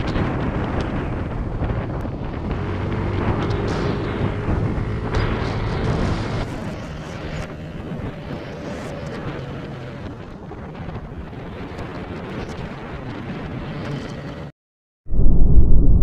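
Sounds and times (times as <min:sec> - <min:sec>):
motorcycle engine running: 0:00.0 - 0:10.2
wind rush on microphone: 0:00.0 - 0:14.5.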